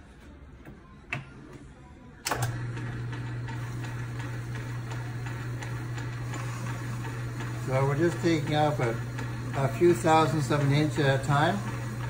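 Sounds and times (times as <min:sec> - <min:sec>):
lathe switch click: 0:02.2 - 0:02.7
belt drive whirring: 0:02.2 - 0:12.0
electric motor humming: 0:02.3 - 0:12.0.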